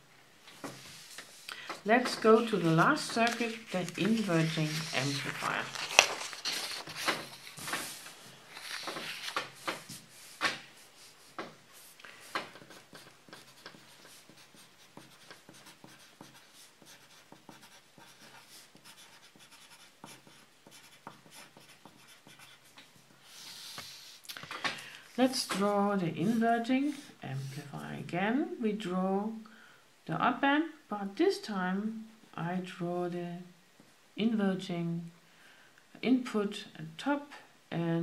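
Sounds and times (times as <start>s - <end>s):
paper rustling: 0.6s - 11.2s
pencil scratching on paper: 11.8s - 24.1s.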